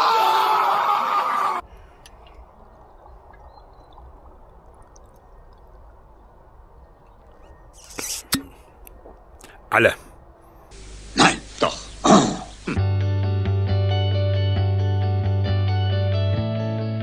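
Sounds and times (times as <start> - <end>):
faint outdoor background hiss: 1.6 - 12.8
man speaking: 9.4 - 10.1.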